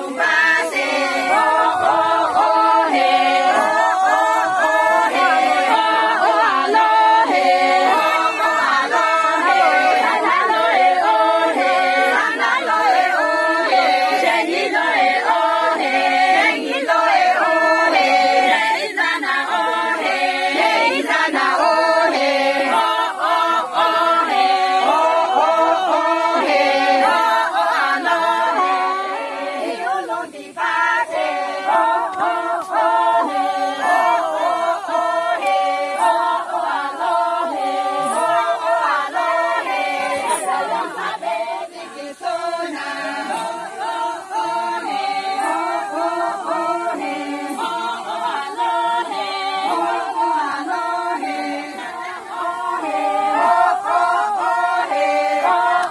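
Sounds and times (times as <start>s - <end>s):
women singing unaccompanied: 0.0s - 55.9s.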